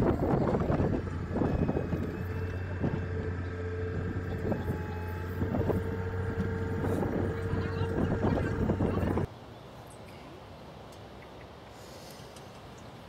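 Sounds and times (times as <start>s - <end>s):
heavy machine engine running: 0.0s - 9.3s
wind on microphone: 0.0s - 9.3s.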